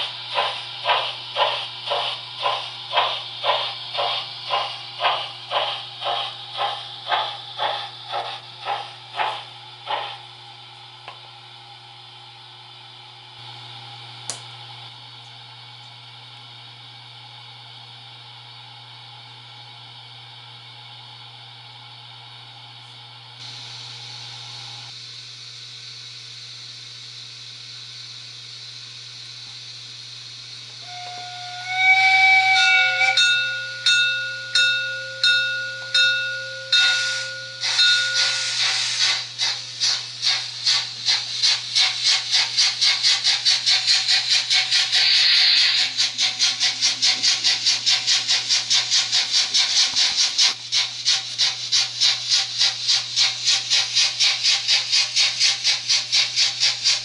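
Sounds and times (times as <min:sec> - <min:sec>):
steam hiss: 0:00.0 - 0:10.2, 0:23.4 - 0:33.2, 0:36.7 - 0:57.0
locomotive exhaust chuffs: 0:00.0 - 0:10.4, 0:30.3 - 0:57.0
steam locomotive whistle: 0:30.8 - 0:39.2.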